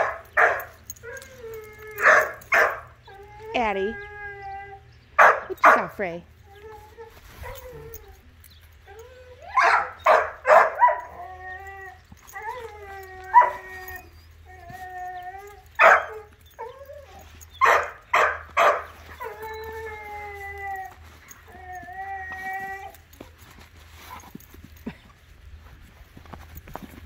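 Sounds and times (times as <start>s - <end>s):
dogs barking: 0.0s - 1.3s, 2.0s - 3.0s, 5.1s - 6.0s, 9.5s - 11.2s, 13.2s - 14.1s, 15.7s - 16.8s, 17.5s - 19.6s
dogs whining and howling: 0.0s - 24.8s.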